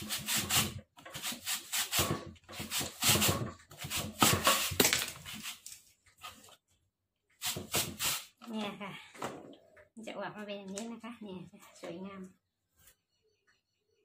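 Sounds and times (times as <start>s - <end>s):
taro scraping on a grater: 0.0s - 5.7s.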